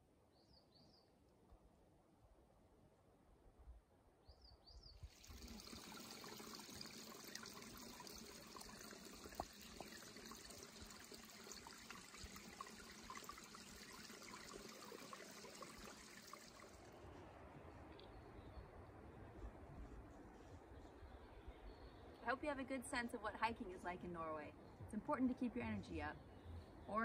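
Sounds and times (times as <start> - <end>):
brook trickling over rocks: 5.0 - 17.0.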